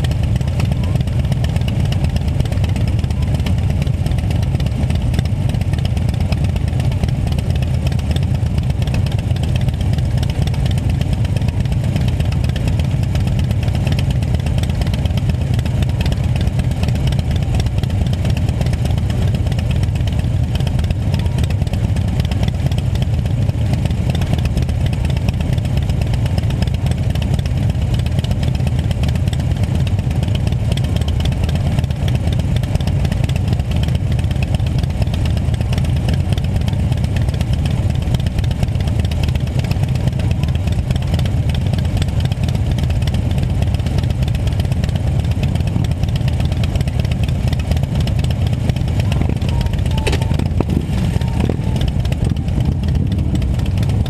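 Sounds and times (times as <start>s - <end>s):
motorcycles idling: 0.0s - 54.0s.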